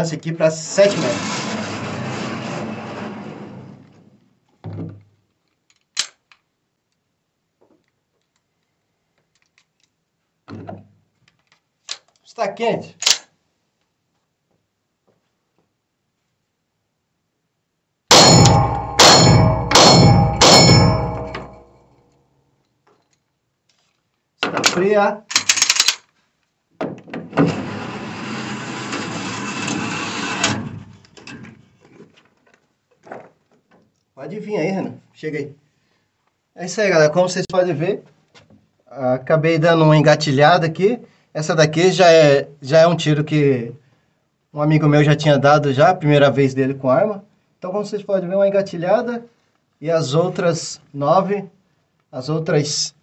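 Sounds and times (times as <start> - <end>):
small handling clicks: 5.3 - 7.0, 7.8 - 10.0, 11.2 - 12.3, 13.0 - 13.3, 22.9 - 26.2.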